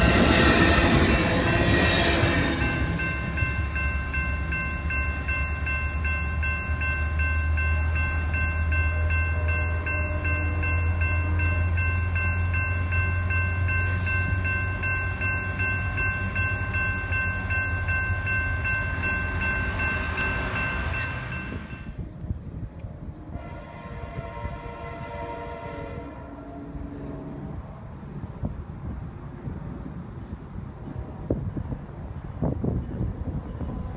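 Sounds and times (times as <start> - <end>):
crossing bell ringing: 0.0 - 22.1
low train rumble: 0.0 - 33.9.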